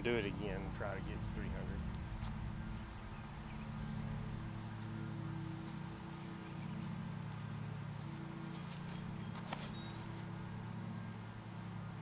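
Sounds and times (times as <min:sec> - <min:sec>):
low engine-like hum: 0:00.0 - 0:12.0.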